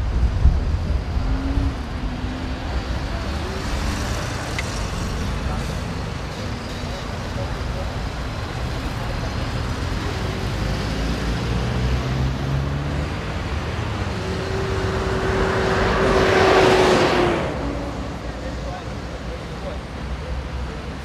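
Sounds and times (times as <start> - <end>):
road traffic passing: 0.0 - 21.0
vehicle passing with whine: 7.3 - 19.7.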